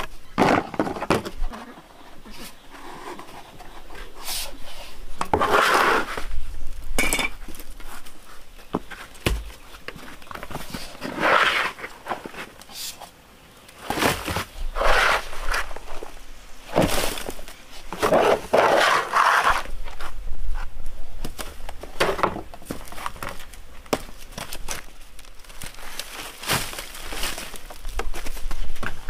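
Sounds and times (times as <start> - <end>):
scraping and rustling: 0.0 - 6.5, 7.3 - 29.0
dry peelings rustling: 22.7 - 28.8.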